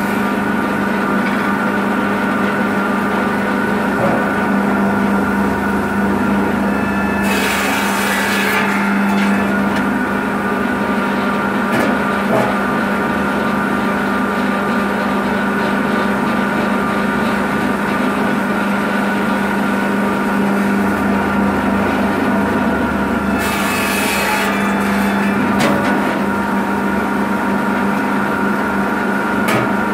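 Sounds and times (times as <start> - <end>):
circular saw motor humming: 2.2 - 13.8, 18.0 - 29.9.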